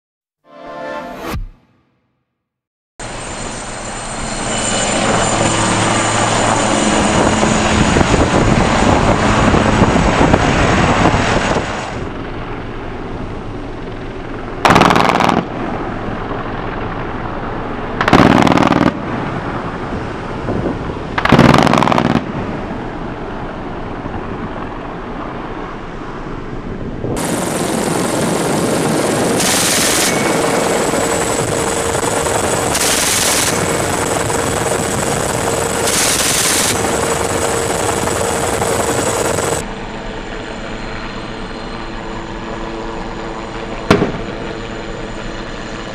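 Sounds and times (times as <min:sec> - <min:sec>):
helicopter engine and rotor: 0:03.0 - 0:45.9
wind on microphone: 0:04.9 - 0:12.5, 0:18.2 - 0:39.7
machine-gun fire bursts: 0:14.6 - 0:15.5, 0:18.0 - 0:19.0, 0:21.2 - 0:22.3, 0:29.3 - 0:39.6.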